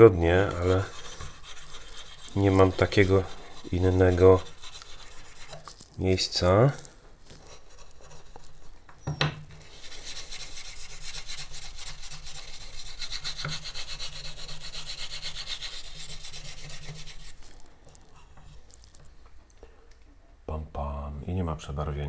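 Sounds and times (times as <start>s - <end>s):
eraser scrubbing a steel blade: 0.2s - 8.8s, 9.6s - 17.7s.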